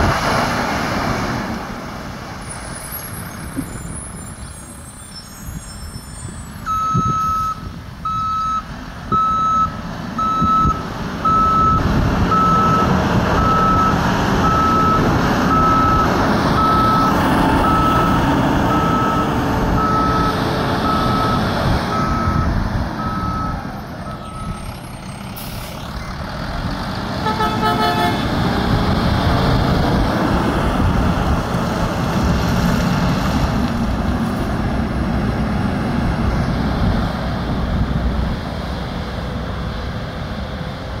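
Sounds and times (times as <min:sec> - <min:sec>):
diesel truck engine: 0:00.0 - 0:41.0
truck reverse alarm beeping: 0:03.8 - 0:26.2
horn toot: 0:27.2 - 0:28.3.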